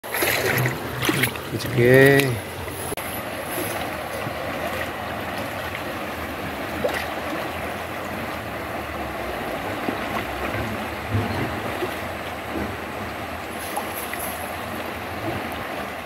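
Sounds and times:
river water rushing: 0.0 - 16.0.

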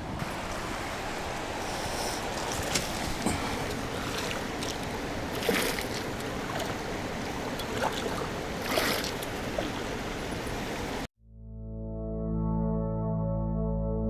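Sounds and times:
creek rushing over rocks: 0.0 - 11.1
ambient synth music: 11.4 - 14.0.

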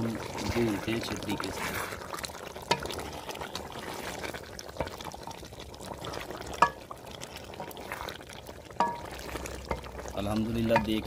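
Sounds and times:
meat bubbling in oil: 0.0 - 11.0
spatula clinking against pot: 8.8 - 9.1, 10.6 - 11.0.

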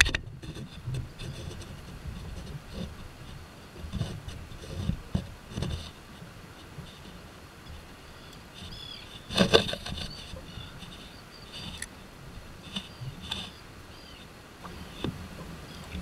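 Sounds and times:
fishing rod and reel clattering: 6.6 - 12.0.

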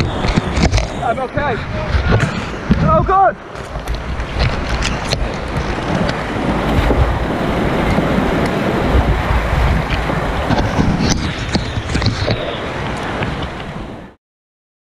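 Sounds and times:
river rapids rushing: 0.0 - 14.1.

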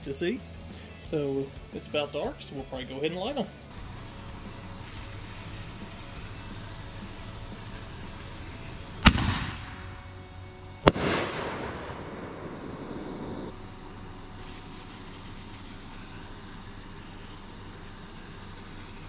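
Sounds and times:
mortar launch boom: 9.0 - 10.1, 10.8 - 13.5
shell bursting bang: 9.0 - 13.6.

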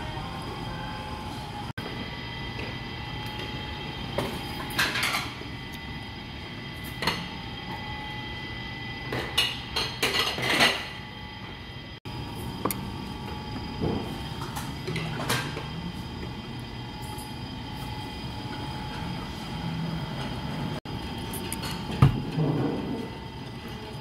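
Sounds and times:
steady background hum: 0.0 - 24.0
dishes and cutlery clinking: 9.2 - 11.0.

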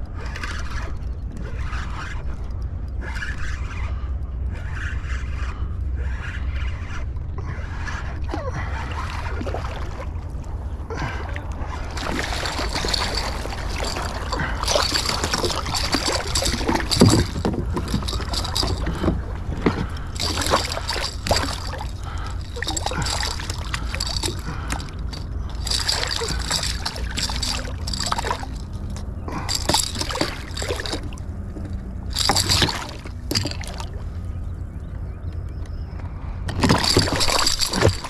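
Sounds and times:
steady low rumble: 2.2 - 38.0
fish thrashing and splashing: 8.5 - 34.1, 36.5 - 38.0.

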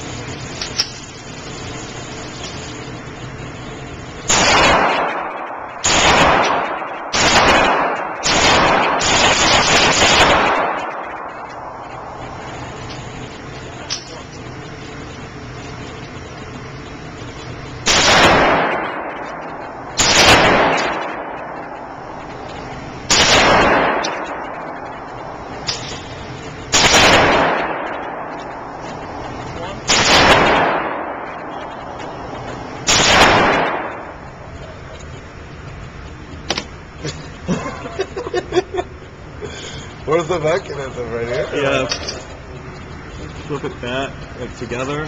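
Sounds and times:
handgun shots echoing indoors: 4.3 - 12.1, 17.8 - 22.0, 23.1 - 24.8, 26.7 - 29.0, 29.9 - 32.2, 32.8 - 34.1.

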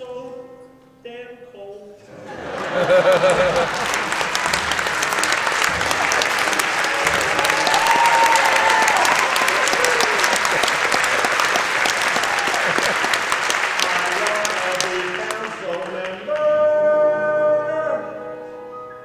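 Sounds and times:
audience applauding: 2.3 - 16.7.

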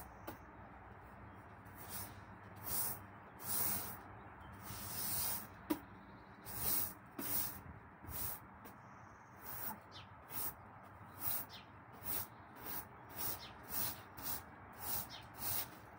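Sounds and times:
broom sweeping wet stone: 1.8 - 4.0, 4.6 - 5.5, 6.5 - 8.4, 11.2 - 15.9.

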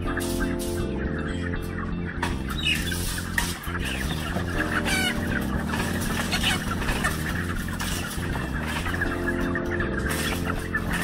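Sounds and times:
chickens clucking: 0.0 - 11.0
chicken squawks: 2.5 - 9.5.

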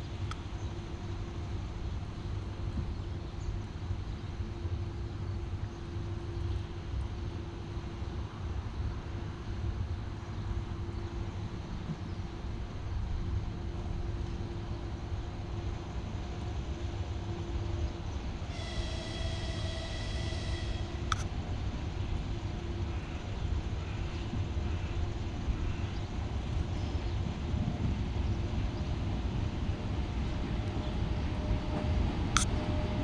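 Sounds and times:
distant train whistle: 18.5 - 21.3
short sharp click: 21.1 - 21.3
wind rumble on microphone: 21.2 - 33.0.

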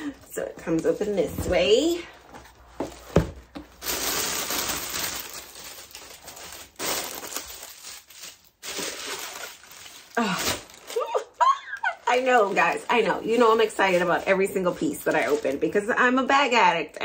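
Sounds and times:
tissue paper crinkling: 2.6 - 15.9.

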